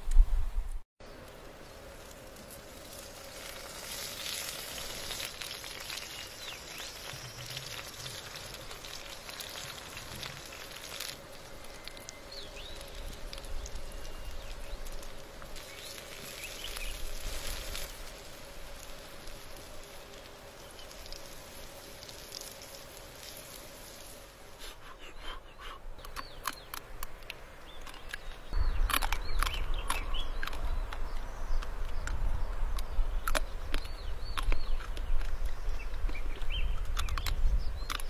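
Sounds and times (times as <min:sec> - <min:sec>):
fish sizzling and crackling: 0:01.1 - 0:24.9.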